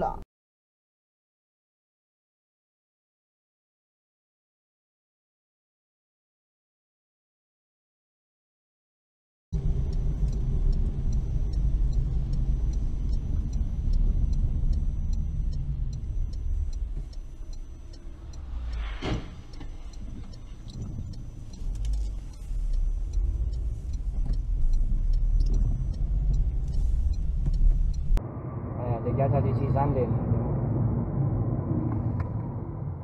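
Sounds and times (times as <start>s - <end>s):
faint ticks: 9.6s - 28.2s
car engine and tyres rumbling: 9.6s - 33.0s.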